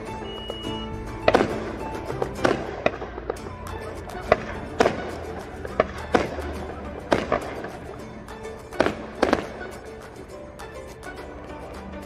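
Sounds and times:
fireworks bangs: 0.0 - 10.3
music playing: 0.0 - 12.0.

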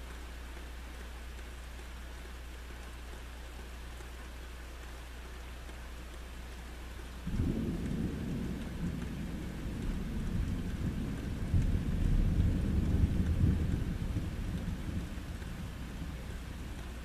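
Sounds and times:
steady rain falling: 0.0 - 17.0
deep thunder rumbling: 7.2 - 16.8.

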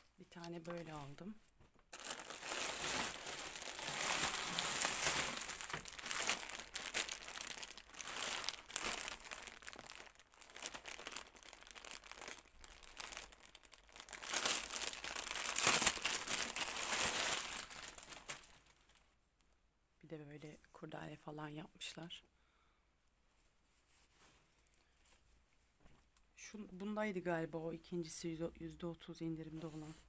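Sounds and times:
plastic bag crinkling: 0.3 - 1.2, 1.9 - 19.0.

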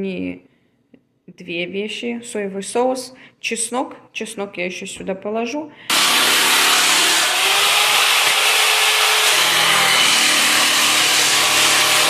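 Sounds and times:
power saw cutting wood: 5.9 - 12.0.

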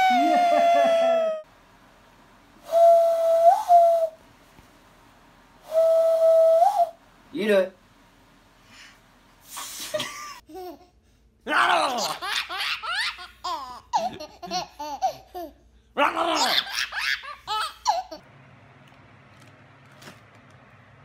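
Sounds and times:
baby laughing: 0.0 - 1.4, 10.0 - 15.6, 16.2 - 18.2.

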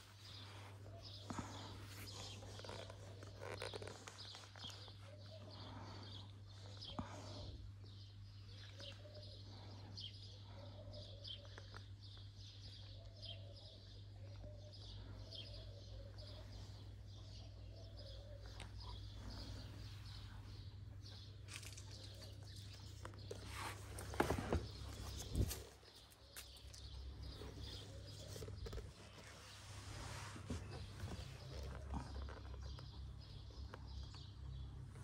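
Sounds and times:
small birds chirping: 0.0 - 35.0
rustles and knocks: 21.4 - 26.7.

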